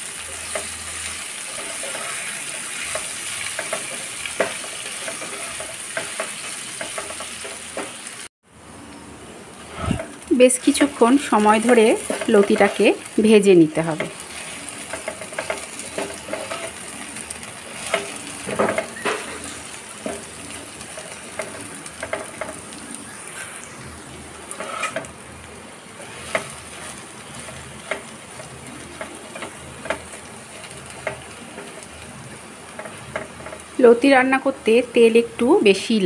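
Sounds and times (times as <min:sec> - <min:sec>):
food frying in oil: 0:00.0 - 0:36.0
spatula scraping and tapping pan: 0:01.5 - 0:08.0, 0:11.6 - 0:13.0, 0:13.9 - 0:22.7, 0:24.5 - 0:25.2, 0:26.0 - 0:32.0, 0:32.7 - 0:33.7.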